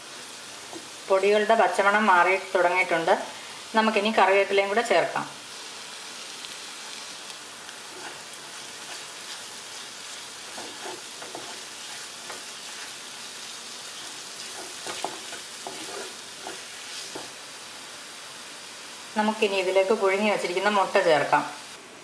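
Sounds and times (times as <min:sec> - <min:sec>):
masala sizzling in a pan: 0:00.0 - 0:21.9
spatula scraping and tapping: 0:07.9 - 0:13.0, 0:14.0 - 0:17.4.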